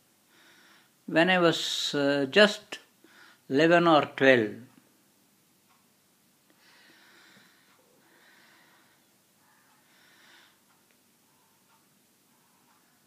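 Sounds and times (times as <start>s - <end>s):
man breathing faintly: 0.2s - 1.0s, 6.5s - 13.0s.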